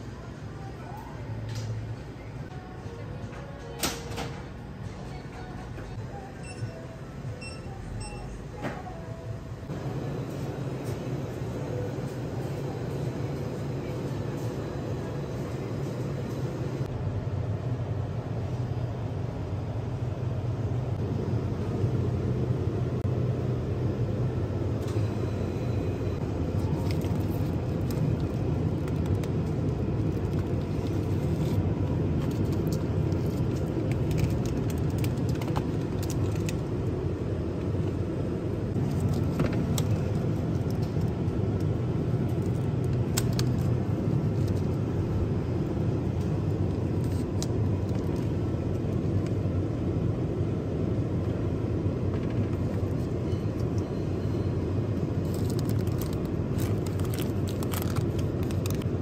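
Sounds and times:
low background rumble: 0:04.7 - 0:59.0
plastic containers crinkling: 0:32.2 - 0:36.6, 0:55.2 - 0:59.0.

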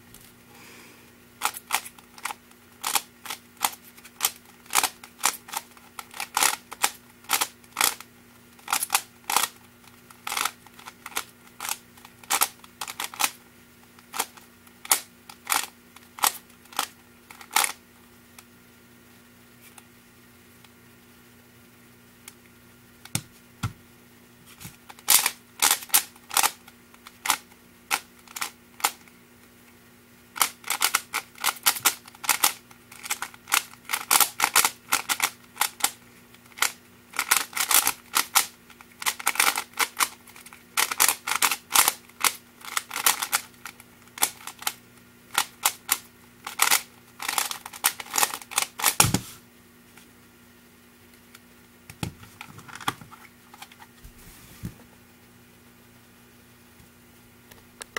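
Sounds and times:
plastic puzzle cube clicking: 0:01.4 - 0:08.0, 0:08.6 - 0:09.6, 0:10.2 - 0:13.4, 0:36.6 - 0:49.0
sharp thump: 0:49.0 - 0:49.3.

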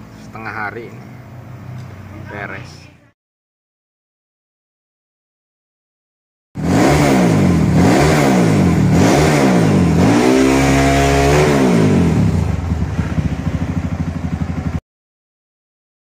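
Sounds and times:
motorcycle engine revving: 0:06.6 - 0:14.8.

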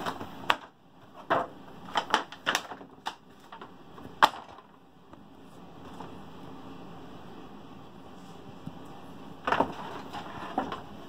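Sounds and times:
cardboard and plastic packaging clicks: 0:00.0 - 0:04.8.

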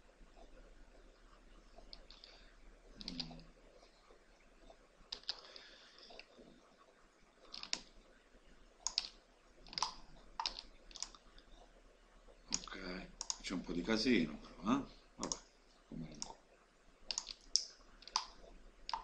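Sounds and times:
keyboard and mouse clicks: 0:01.8 - 0:02.4, 0:03.0 - 0:03.4, 0:05.1 - 0:06.3, 0:07.4 - 0:08.0, 0:08.8 - 0:11.5, 0:12.5 - 0:13.4, 0:15.2 - 0:15.5, 0:16.1 - 0:16.4, 0:17.1 - 0:19.0.

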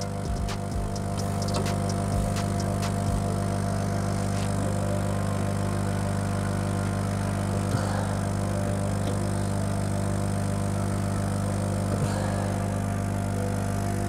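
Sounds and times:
air pump running: 0:00.0 - 0:14.0
laser cutter electric hum: 0:00.0 - 0:14.0.

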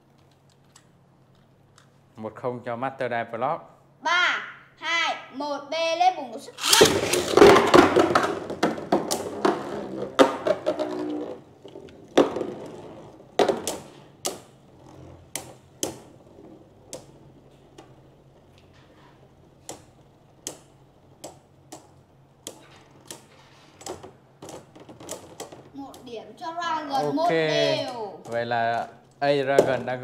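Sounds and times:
tops clacking together: 0:06.6 - 0:11.2
spinning tops whirring: 0:06.6 - 0:26.2.

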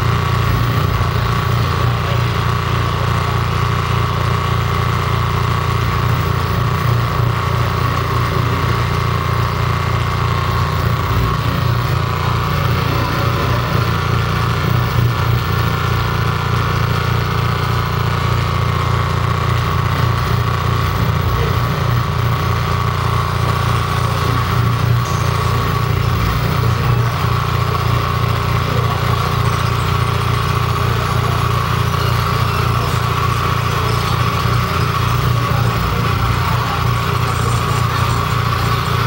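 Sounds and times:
electronic noise music: 0:05.6 - 0:39.0.

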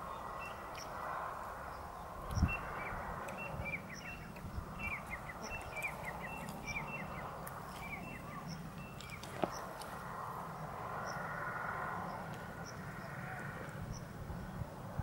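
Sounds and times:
small birds chirping: 0:00.0 - 0:11.3
outdoor background hiss: 0:00.0 - 0:15.0.

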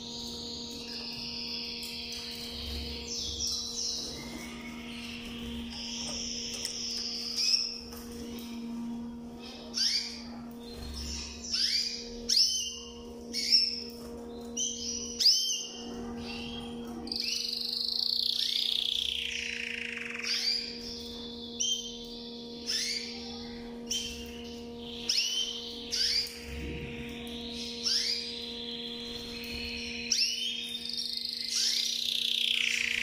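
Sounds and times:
canary singing: 0:00.0 - 0:33.0
steady low hum: 0:00.0 - 0:33.0.

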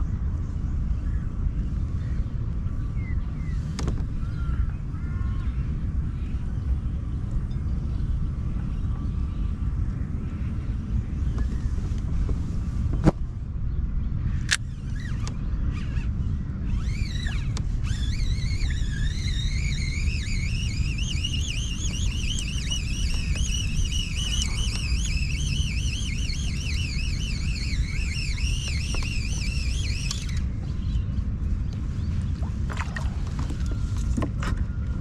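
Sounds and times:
fishing reel drag whining: 0:14.5 - 0:30.6.

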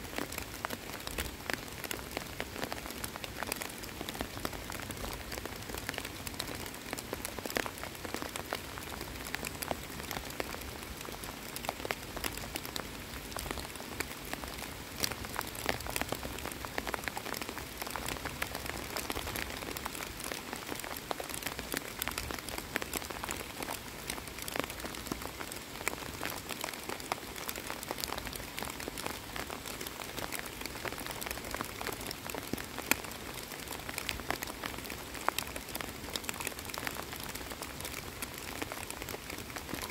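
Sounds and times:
rain falling on water: 0:00.0 - 0:39.9.

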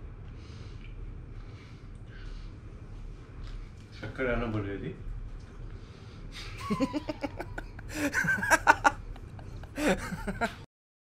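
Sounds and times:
laughter in choppy bursts: 0:06.4 - 0:10.6.

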